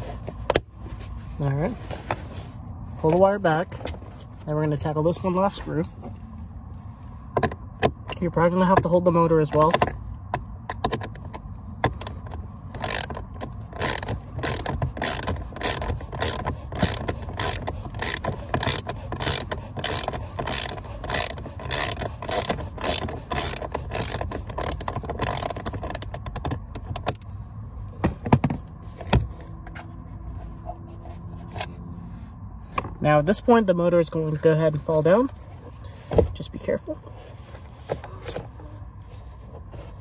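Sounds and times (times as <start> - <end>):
ratchet wrench clicking: 12.8 - 27.3.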